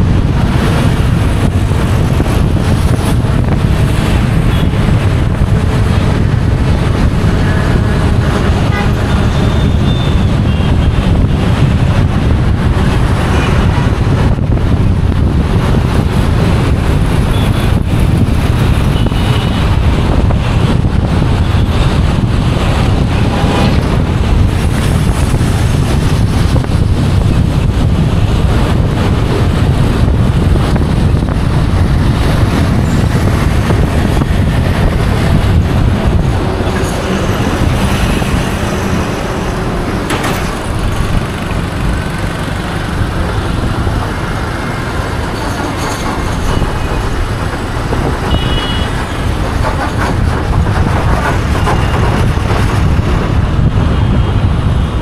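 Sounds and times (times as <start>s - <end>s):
road and wind noise: 0.0s - 55.0s
surrounding cars and trucks: 0.0s - 55.0s.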